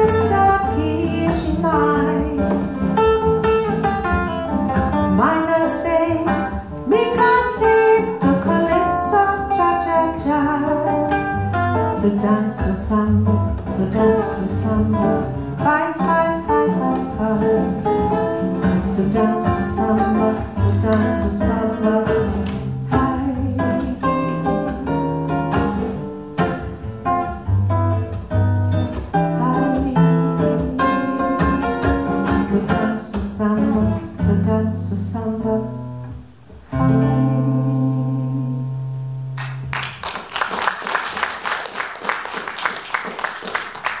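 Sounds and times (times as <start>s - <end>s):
acoustic guitar playing bossa nova: 0.0s - 40.1s
audience clapping: 39.4s - 44.0s.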